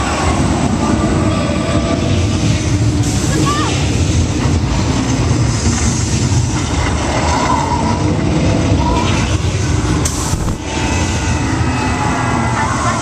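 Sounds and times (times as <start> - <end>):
ride vehicle rumbling on track: 0.0 - 13.0.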